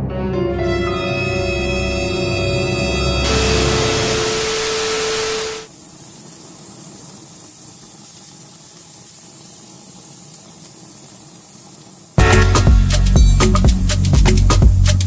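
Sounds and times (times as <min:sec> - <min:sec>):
steady test tone: 0:00.8 - 0:05.7
tv static: 0:03.2 - 0:05.7
meat sizzling over flames: 0:03.2 - 0:12.3.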